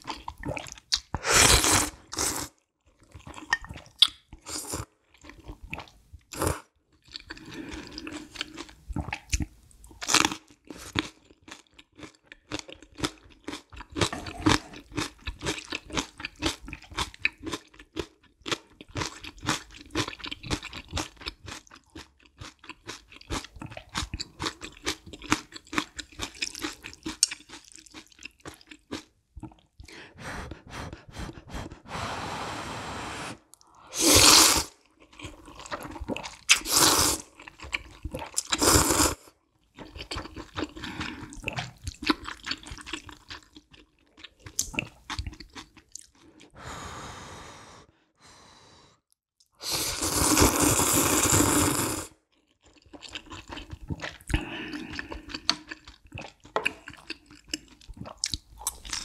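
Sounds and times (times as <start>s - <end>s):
chewing with crunching: 6.9s - 29.9s, 34.8s - 38.7s, 39.7s - 46.5s, 52.3s - 59.0s
noodle slurps: 31.6s - 34.8s.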